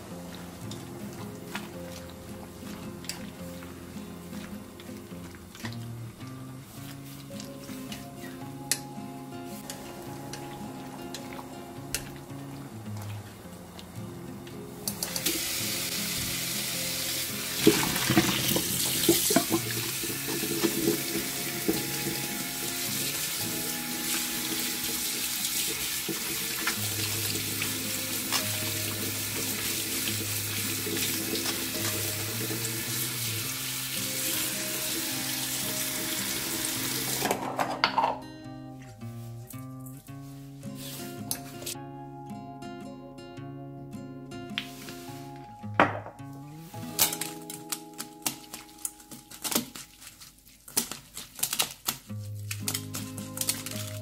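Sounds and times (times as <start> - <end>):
soft background music: 0.0 - 50.4, 51.4 - 54.0
tap running into metal sink: 17.6 - 22.0.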